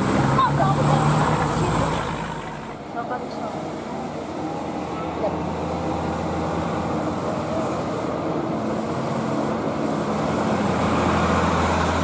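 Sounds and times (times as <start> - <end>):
truck diesel engines droning: 0.0 - 12.0.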